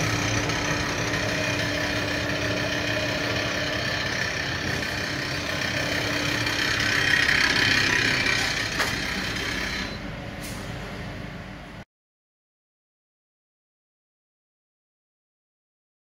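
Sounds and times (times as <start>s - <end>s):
machine hum with steady tones: 0.0s - 11.8s.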